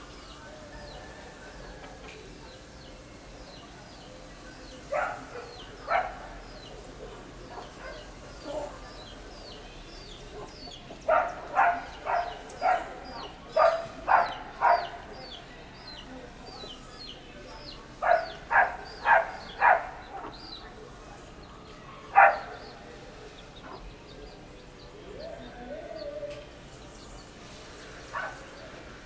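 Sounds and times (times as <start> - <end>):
small birds chirping: 1.9 - 29.0
dog barking: 4.9 - 6.3, 7.5 - 8.1, 10.4 - 15.1, 18.0 - 20.1, 22.1 - 22.8, 28.1 - 28.5.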